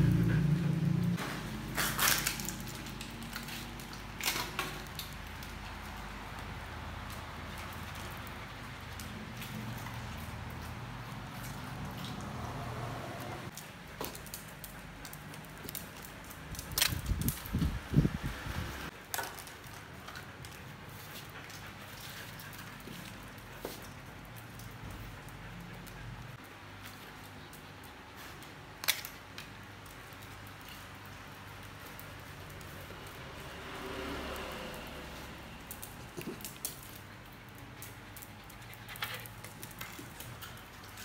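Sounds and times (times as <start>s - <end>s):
dog claws clicking on tiles: 1.7s - 12.4s, 18.9s - 33.4s, 35.6s - 41.0s.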